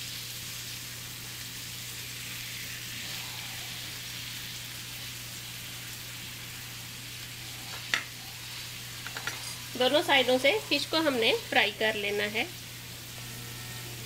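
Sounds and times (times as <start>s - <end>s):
fish sizzling in a pan: 0.0s - 14.0s.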